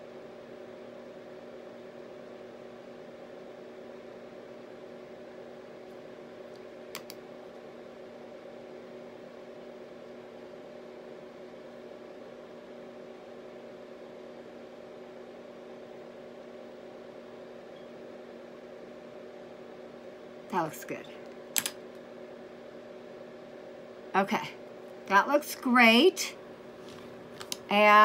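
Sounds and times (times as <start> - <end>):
sharp clicks: 21.5 - 21.8.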